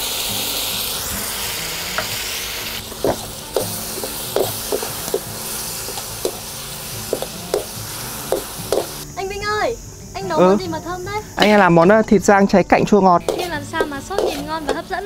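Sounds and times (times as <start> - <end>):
meat sizzling in a pan: 0.0 - 10.6, 13.2 - 15.0
metal spatula clicking against pan: 13.3 - 14.8.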